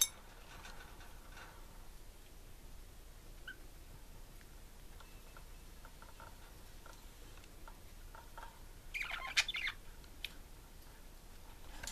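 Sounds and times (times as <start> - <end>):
budgerigars chirping: 8.9 - 9.8.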